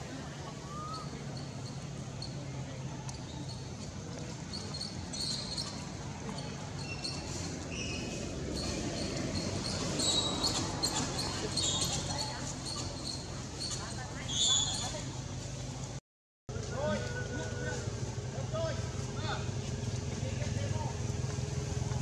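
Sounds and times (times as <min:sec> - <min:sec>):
high chirps and ticks: 0:03.1 - 0:14.9.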